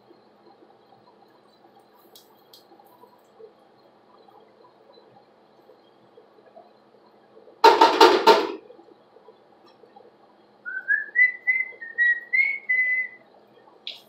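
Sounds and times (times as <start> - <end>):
clatter of quick knocks: 7.6 - 8.6
woman whistling a tune: 10.7 - 13.2.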